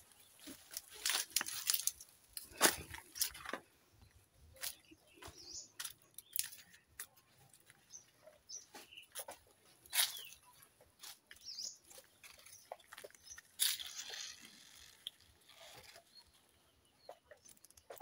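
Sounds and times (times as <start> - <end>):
footsteps crunching through dry leaves: 0.0 - 3.5, 8.7 - 10.4, 12.8 - 14.9.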